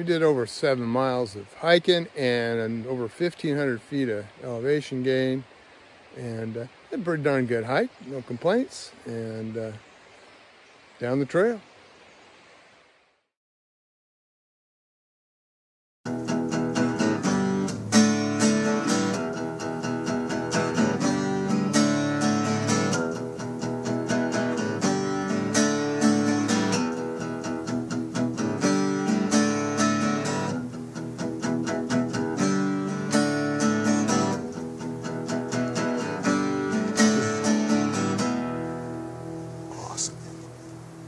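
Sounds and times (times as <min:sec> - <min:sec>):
guitar-led music: 0:16.1 - 0:41.0.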